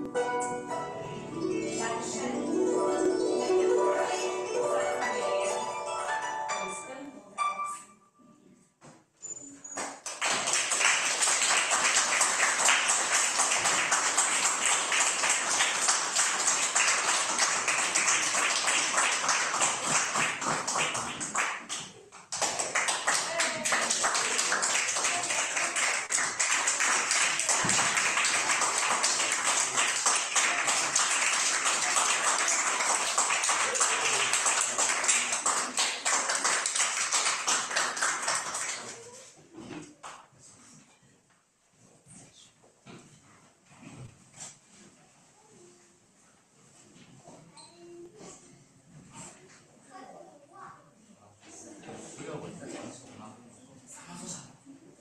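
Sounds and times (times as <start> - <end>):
audience applauding: 9.9 - 39.2.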